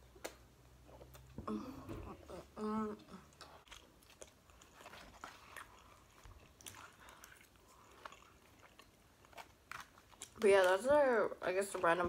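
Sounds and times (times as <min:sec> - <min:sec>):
person chewing crunchy snacks: 0:03.3 - 0:10.4.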